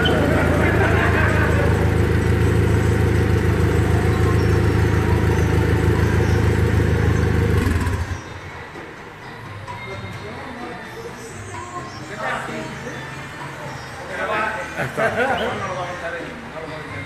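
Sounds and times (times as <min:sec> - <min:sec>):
car engine idling: 0:00.0 - 0:08.4.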